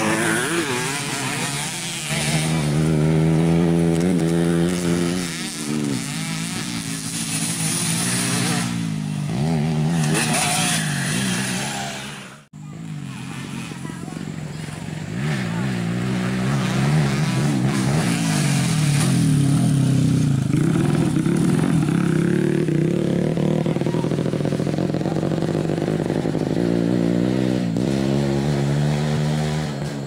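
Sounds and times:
another bike accelerating: 0.0s - 30.0s
dirt bike engine revving: 0.0s - 30.0s.

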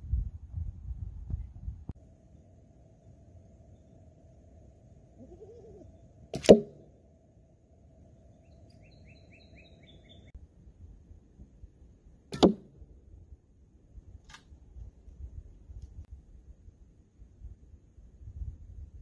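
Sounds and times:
faint bird chirps: 2.9s - 4.2s, 5.1s - 6.3s, 8.1s - 10.4s
arrow hitting foam target: 6.4s - 6.8s, 12.3s - 12.8s
bowstring snap: 6.4s - 6.8s, 12.3s - 12.7s.

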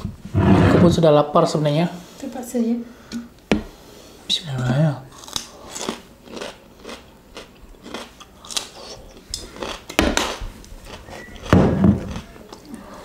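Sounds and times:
cucumber crunching while chewed: 5.1s - 12.7s
loud knock: 11.5s - 12.1s.

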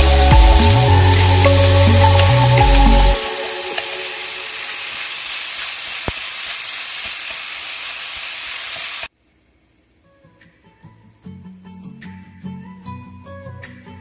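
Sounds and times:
meat sizzling in a pan: 3.2s - 9.1s.

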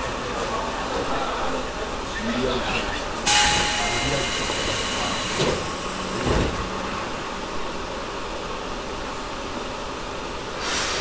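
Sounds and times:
train car rushing noise: 3.2s - 9.7s.

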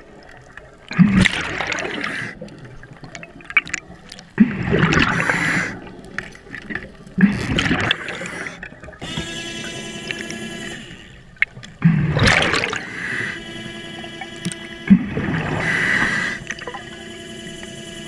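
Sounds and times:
underwater breath bubbling: 0.9s - 2.7s, 4.4s - 6.6s, 7.2s - 9.3s, 11.8s - 17.1s.

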